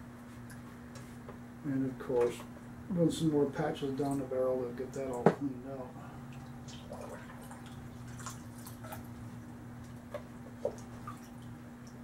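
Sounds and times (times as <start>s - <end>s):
steady low hum: 0.0s - 12.0s
water dripping into bucket: 6.3s - 9.2s, 9.8s - 12.0s.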